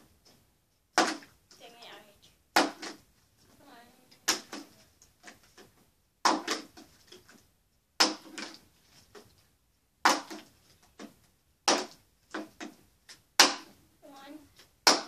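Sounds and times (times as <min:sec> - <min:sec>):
plastic bottle thumping on wood: 0:00.9 - 0:01.3, 0:02.6 - 0:03.0, 0:04.2 - 0:06.9, 0:08.0 - 0:08.6, 0:10.0 - 0:12.8.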